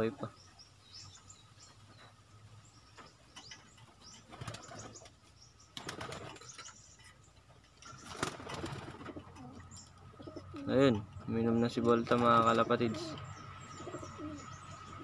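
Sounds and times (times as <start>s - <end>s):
pigeons flapping wings in cage: 4.3s - 5.1s, 5.8s - 6.6s, 8.0s - 9.2s, 12.0s - 13.0s.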